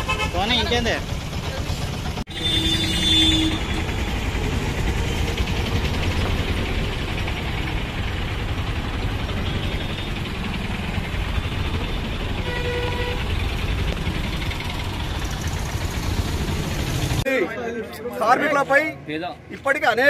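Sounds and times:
vehicle horn: 0.0s - 0.6s, 2.3s - 4.0s, 12.3s - 13.4s
auto-rickshaw engines passing: 0.0s - 19.2s.

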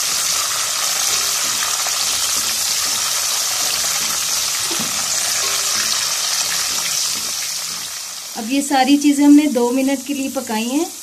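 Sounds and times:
spatula stirring in pot: 0.0s - 8.3s
food sizzling in hot fat: 0.0s - 11.0s.

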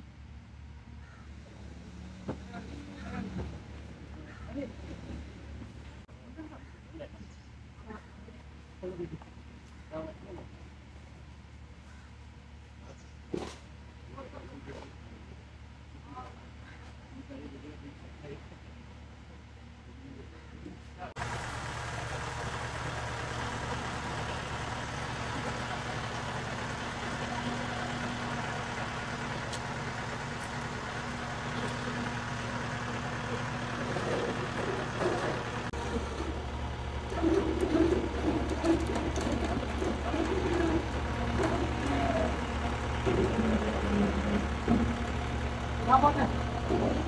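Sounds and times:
truck engine idling: 21.1s - 47.0s.

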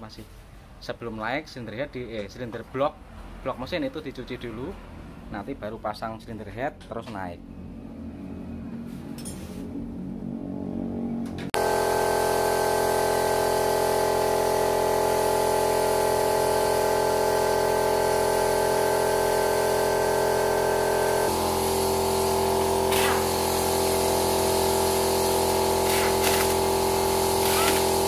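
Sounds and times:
air compressor running: 11.6s - 28.0s.

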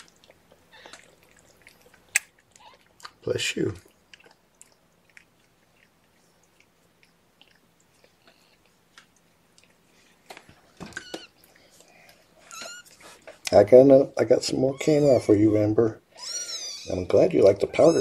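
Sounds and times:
kitten mewing: 14.6s - 17.0s.

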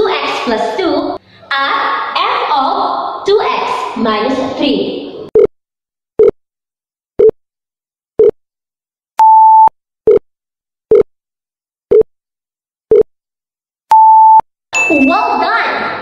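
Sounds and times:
steady beep: 9.2s - 10.2s, 13.9s - 15.4s.

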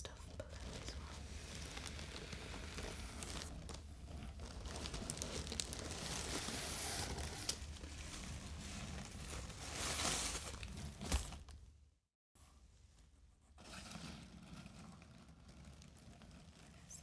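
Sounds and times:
plastic packaging crinkling: 0.4s - 11.6s.

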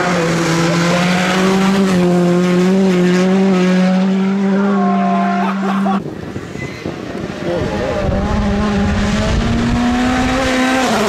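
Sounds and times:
car engine at high revs: 0.0s - 6.3s, 6.9s - 11.0s.

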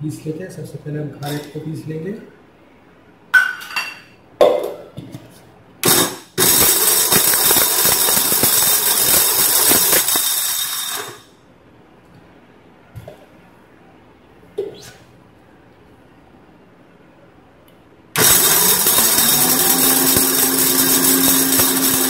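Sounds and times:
mixer grinder running: 5.8s - 11.2s, 18.2s - 22.0s.

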